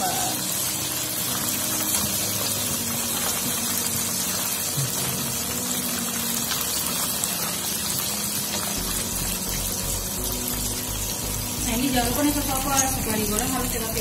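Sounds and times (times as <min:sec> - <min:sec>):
fish deep-frying in sizzling oil: 0:00.0 - 0:14.0.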